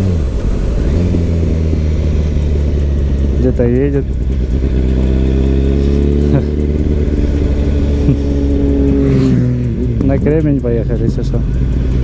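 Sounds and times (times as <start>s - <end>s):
wind rush on microphone: 0.0s - 5.0s
motorcycle engine running: 0.0s - 12.0s.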